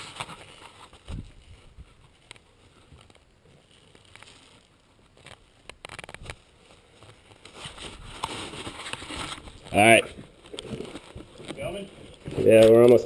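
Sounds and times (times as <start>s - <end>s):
scuffing and scraping on rock: 0.0s - 13.0s.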